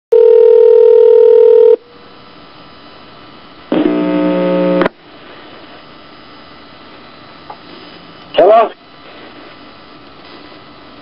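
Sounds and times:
telephone dial tone: 0.1 - 1.8
low line hiss and hum: 0.2 - 11.0
harsh buzzing tone: 3.7 - 5.0.

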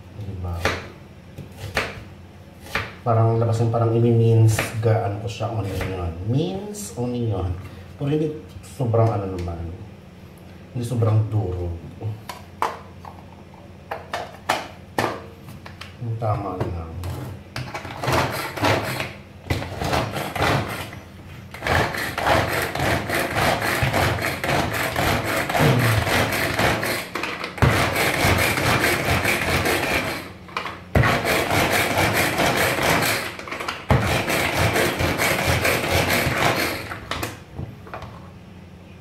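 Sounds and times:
food chopper clicking and rattling: 21.6 - 37.3.

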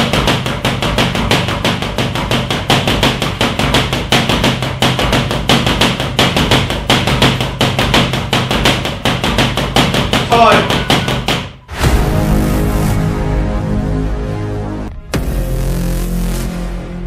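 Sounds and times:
boxing gloves hitting pads: 0.0 - 11.6.

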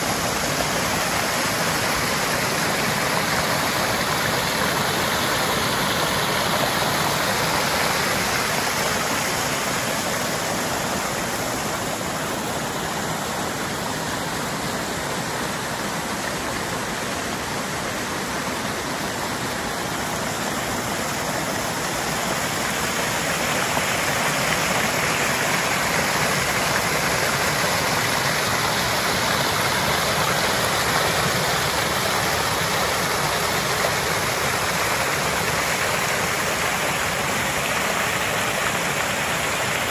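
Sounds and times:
water cascading over rocks: 0.0 - 39.9.

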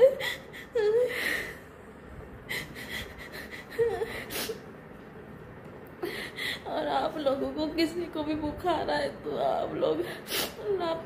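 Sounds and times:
woman whimpering: 0.0 - 1.6, 2.5 - 4.6.

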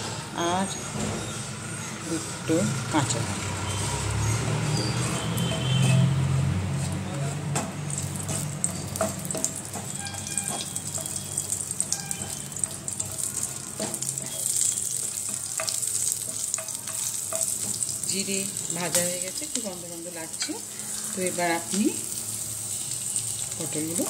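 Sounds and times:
spatula scraping and tapping pan: 6.8 - 19.3
small pops of frying seeds: 7.5 - 9.9, 10.5 - 19.2
spices sizzling in oil: 7.7 - 24.0.

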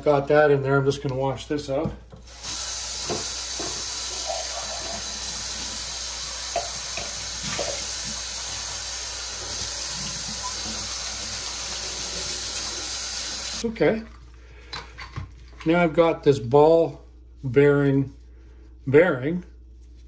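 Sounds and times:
tap running into a sink: 2.1 - 13.6.

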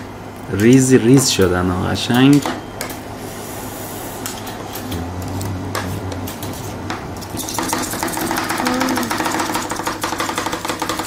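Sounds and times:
metal spatulas chopping on steel plate: 5.7 - 11.0.

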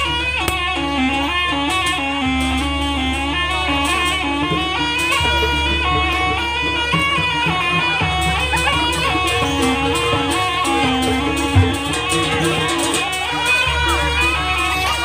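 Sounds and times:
drum strokes: 0.0 - 15.0
shrill reed pipe melody: 0.0 - 15.0.

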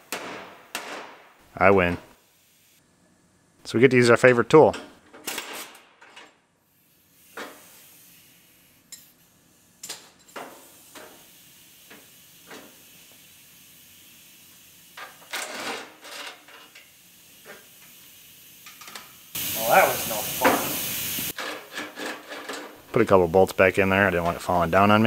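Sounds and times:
faint steady hiss: 6.8 - 15.4, 16.1 - 21.4, 22.6 - 25.0.

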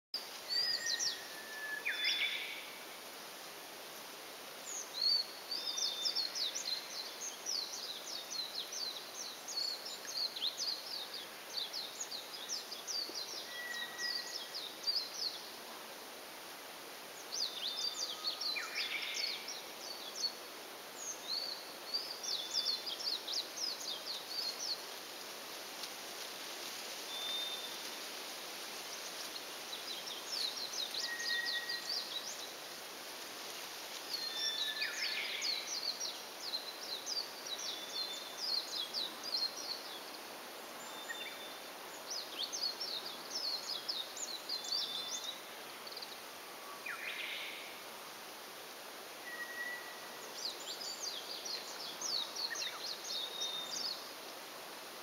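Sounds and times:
steady outdoor hiss: 0.1 - 55.0
small birds twittering: 0.2 - 3.0, 4.5 - 15.9, 17.0 - 48.4, 49.2 - 55.0.

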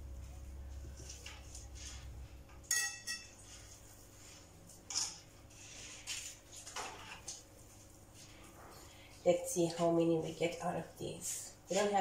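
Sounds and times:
spoon clinking on ceramic bowl: 2.6 - 3.4.

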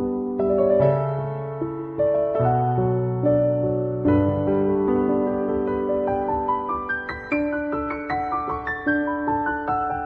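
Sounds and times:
gentle piano notes: 0.0 - 10.0.

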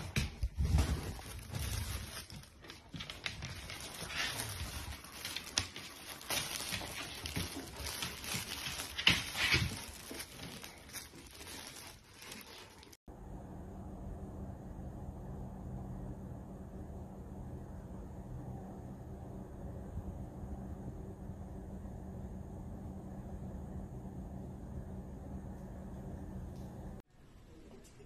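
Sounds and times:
fabric tunnel rustling: 0.0 - 13.0.

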